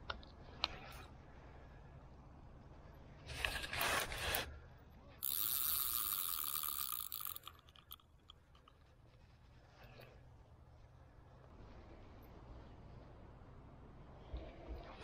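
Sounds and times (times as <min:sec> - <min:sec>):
fishing reel buzzing: 0:05.2 - 0:08.7.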